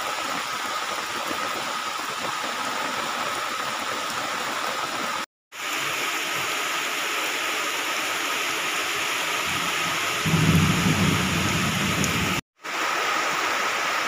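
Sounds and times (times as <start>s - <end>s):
heavy rain pouring: 0.0s - 14.0s
thunder rumble: 10.2s - 12.4s.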